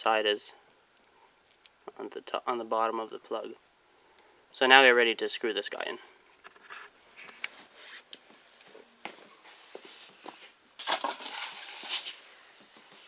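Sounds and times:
small metallic clicks and clinks: 0:01.0 - 0:01.8
loud scuffing noise: 0:07.1 - 0:10.6.

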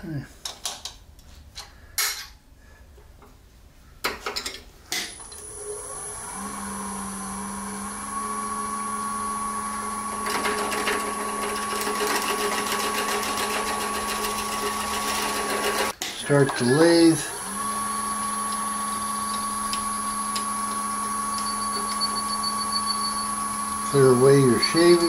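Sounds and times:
lathe motor hum and whine: 0:05.2 - 0:25.0
drill bit cutting wood: 0:05.3 - 0:25.0.

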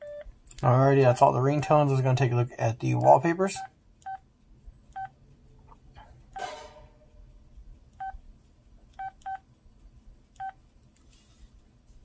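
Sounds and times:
phone keypad beeps: 0:00.0 - 0:00.3, 0:09.0 - 0:09.4.

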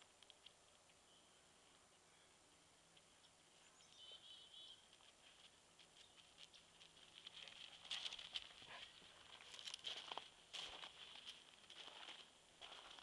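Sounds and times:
dogs' paws pattering: 0:04.8 - 0:13.0.

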